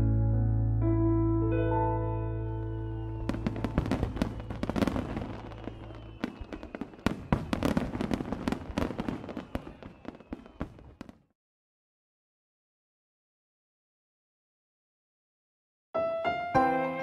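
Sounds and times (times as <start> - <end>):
fireworks crackling and banging: 3.1 - 11.2.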